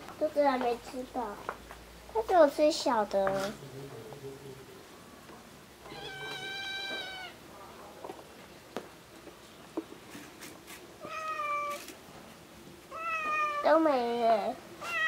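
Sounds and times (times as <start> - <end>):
cats meowing: 5.8 - 7.4, 11.0 - 11.9, 12.9 - 13.8, 14.8 - 15.0.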